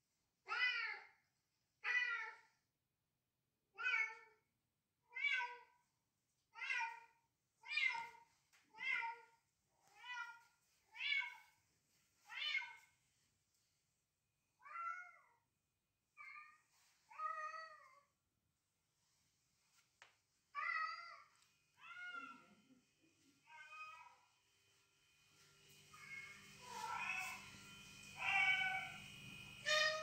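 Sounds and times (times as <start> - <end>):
cat meowing: 28.1 - 30.0.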